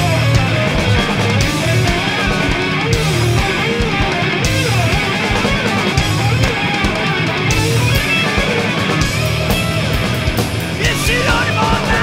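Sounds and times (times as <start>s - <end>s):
distorted electric guitar: 0.0s - 12.0s
rapid drum hits: 0.0s - 12.0s.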